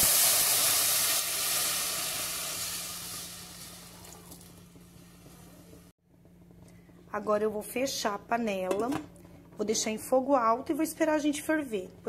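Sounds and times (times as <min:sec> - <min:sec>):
water sizzling in hot oil: 0:00.0 - 0:05.5.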